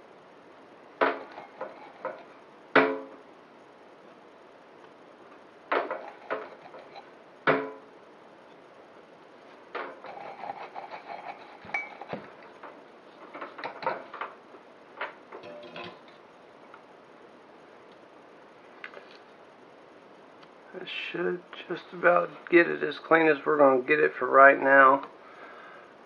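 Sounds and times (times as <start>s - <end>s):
workbench handling knocks and clicks: 5.7s - 6.6s, 7.4s - 7.8s.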